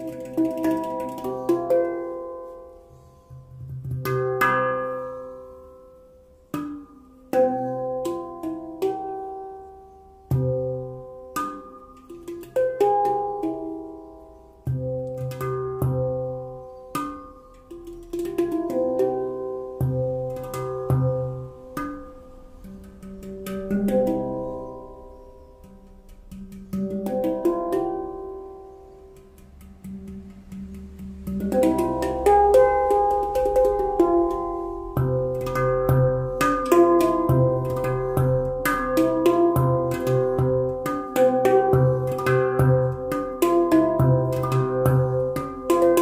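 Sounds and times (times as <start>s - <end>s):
handpan melody: 0.0s - 46.0s.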